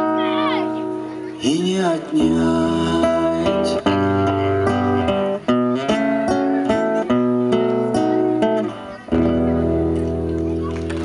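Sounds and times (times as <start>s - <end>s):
acoustic guitar playing: 0.0s - 11.0s.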